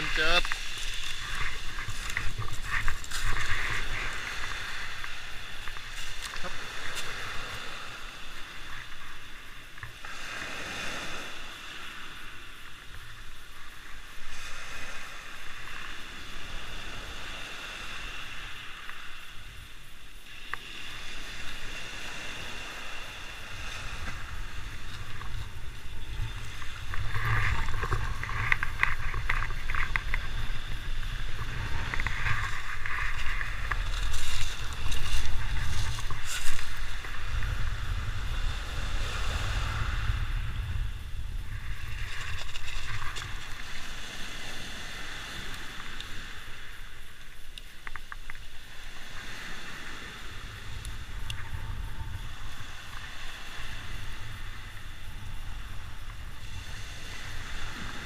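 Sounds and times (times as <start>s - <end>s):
footsteps crunching on pebbles: 0.0s - 7.2s, 24.0s - 37.0s
wind rumbling on microphone: 0.0s - 58.0s.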